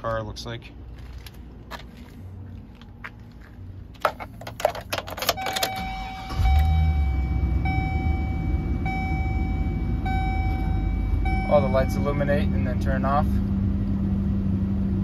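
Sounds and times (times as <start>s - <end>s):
keys jangling in ignition: 4.0s - 6.7s
dashboard warning chime: 5.2s - 13.1s
engine starting and idling: 5.3s - 8.0s.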